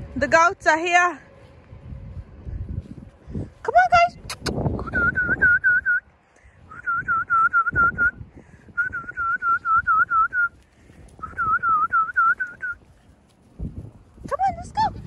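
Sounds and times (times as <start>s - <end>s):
person whistling: 4.8s - 6.0s, 6.7s - 10.6s, 11.2s - 12.8s.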